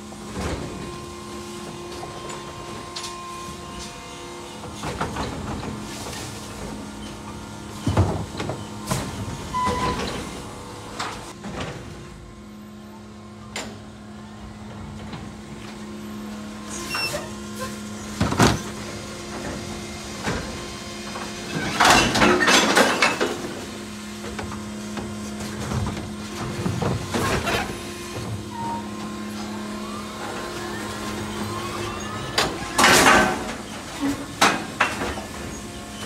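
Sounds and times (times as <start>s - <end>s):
garbage truck humming: 0.0s - 36.0s
knocks and clanks: 32.4s - 35.6s.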